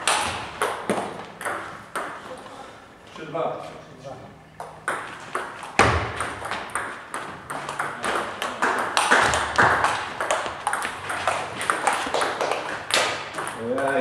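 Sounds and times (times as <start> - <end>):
table tennis ball clicking: 6.2 - 14.0.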